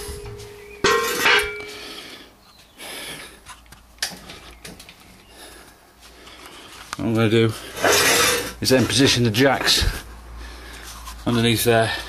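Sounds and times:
metal clank with ring: 0:00.0 - 0:01.8.

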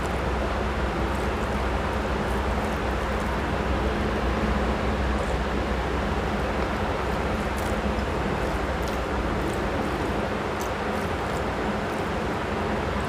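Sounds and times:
rushing background noise: 0:00.0 - 0:13.0.

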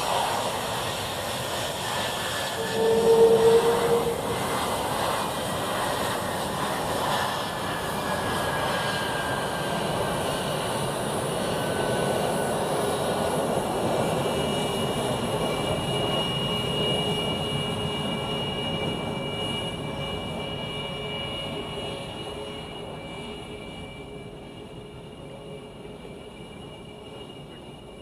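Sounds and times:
jet engines rushing with turbine whine: 0:00.0 - 0:28.0.

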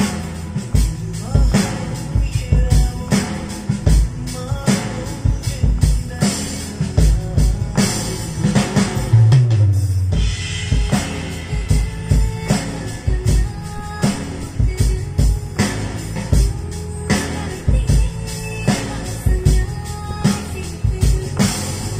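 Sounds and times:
music with bass and melody: 0:00.0 - 0:21.9
sampled drum hits: 0:00.0 - 0:21.9.

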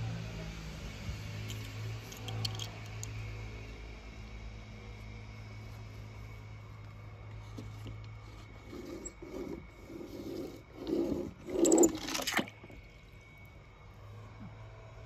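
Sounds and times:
toy car scraping over paper: 0:08.2 - 0:12.1.

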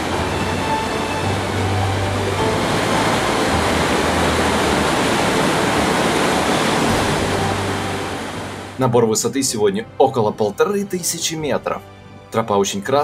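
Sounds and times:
river rushing: 0:00.0 - 0:08.9.

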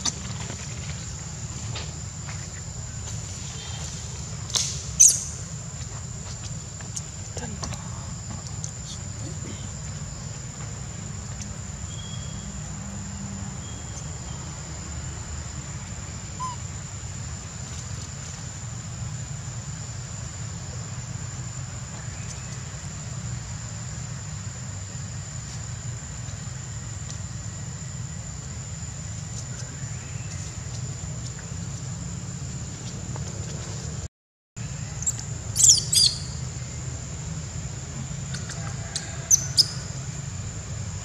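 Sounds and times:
high-pitched insect drone: 0:06.8 - 0:17.6, 0:34.6 - 0:41.0
faint bird chirps: 0:11.8 - 0:12.6, 0:16.4 - 0:16.6, 0:35.0 - 0:36.4.

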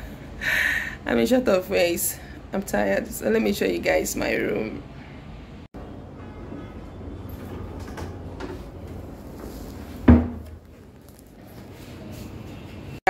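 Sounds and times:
door thudding shut: 0:10.0 - 0:10.4.

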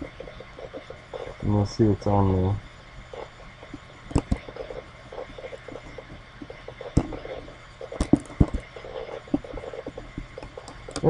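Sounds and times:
faint room hum: 0:00.0 - 0:11.0
computer mouse clicking: 0:04.1 - 0:05.7, 0:07.9 - 0:11.0.

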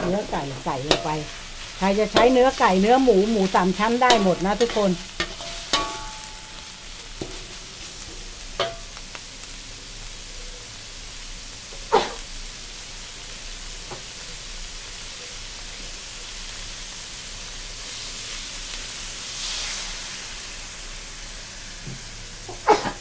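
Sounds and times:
food sizzling in a wok: 0:00.0 - 0:23.0
liquid poured into hot wok hissing: 0:04.8 - 0:22.5.

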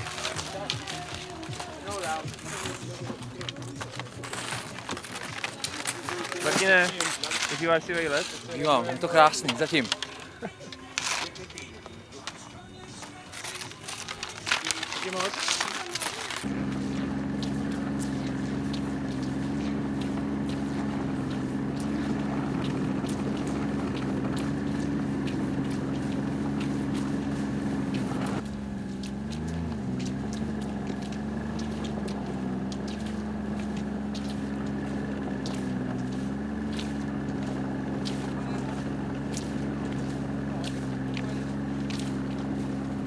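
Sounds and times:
motor humming: 0:16.2 - 0:43.0.

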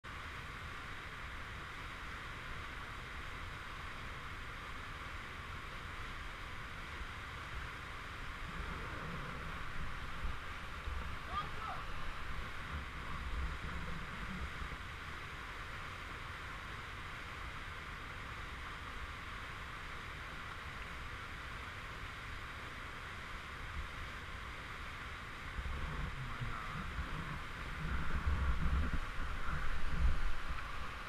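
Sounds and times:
whitewater rushing over rocks: 0:00.1 - 0:31.0
low rumble: 0:25.5 - 0:31.0.

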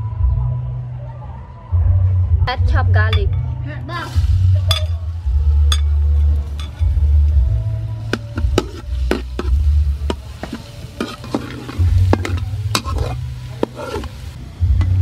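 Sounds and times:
garlic sizzling in oil: 0:04.0 - 0:15.0
metal spatula scraping a wok: 0:08.0 - 0:14.4.

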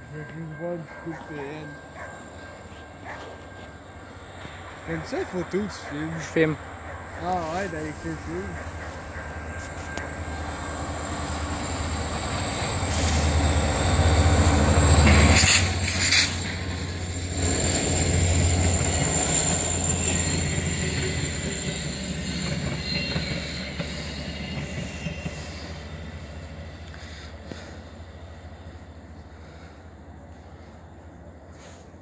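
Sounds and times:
passing train rumble: 0:00.0 - 0:32.0
high wheel squeal: 0:07.2 - 0:27.8.

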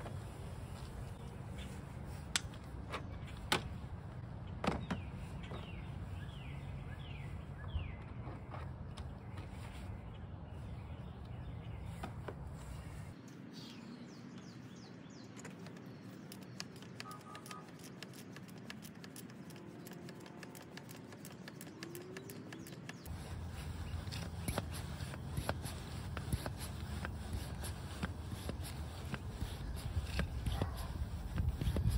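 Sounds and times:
hand pump clicking: 0:15.5 - 0:31.9.

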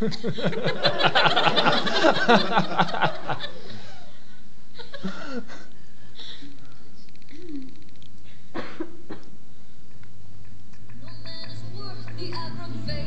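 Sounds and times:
people laughing: 0:00.0 - 0:05.7.

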